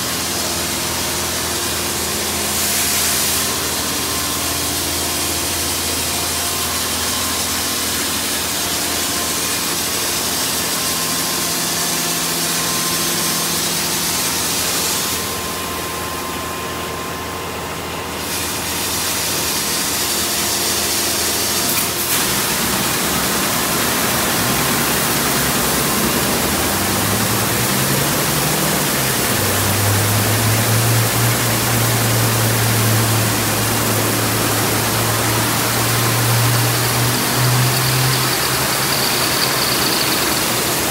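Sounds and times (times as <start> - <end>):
high-pressure water spray hissing: 0.0 - 15.3, 18.2 - 40.9
pump motors humming: 0.0 - 40.9
motor winding up: 21.2 - 40.9.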